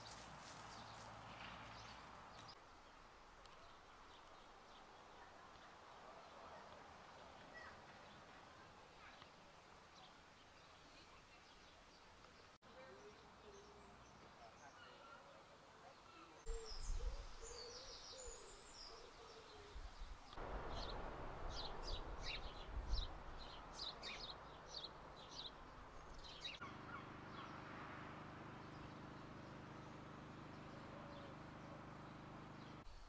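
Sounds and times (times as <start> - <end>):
birds hooting coos: 16.5 - 19.8
low rumbling on microphone: 20.4 - 26.4.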